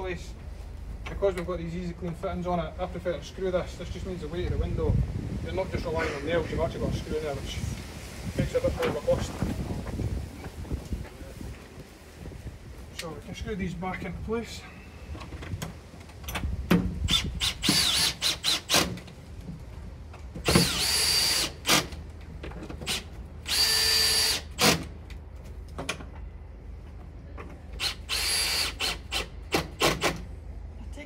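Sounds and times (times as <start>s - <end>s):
power drill motor whine: 17.1s - 18.8s, 20.5s - 21.9s, 22.9s - 24.8s, 27.8s - 29.3s.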